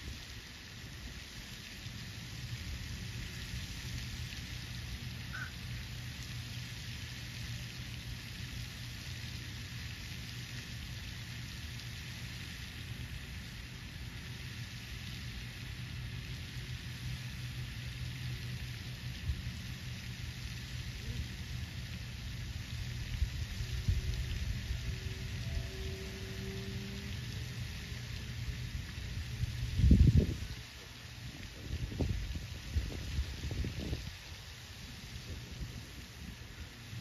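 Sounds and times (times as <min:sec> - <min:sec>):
outdoor hiss: 0:00.0 - 0:37.0
low hum: 0:15.6 - 0:32.1.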